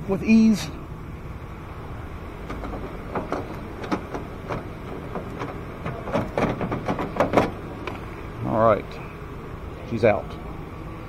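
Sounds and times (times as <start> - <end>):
low background rumble: 0.0 - 11.0
door handle clicking and knocking: 2.4 - 8.0.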